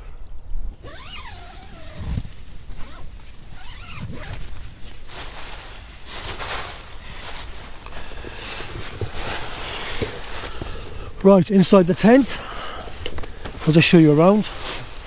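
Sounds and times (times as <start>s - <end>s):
tent door unzipping: 0.8s - 11.0s
fabric rustling: 0.9s - 15.0s.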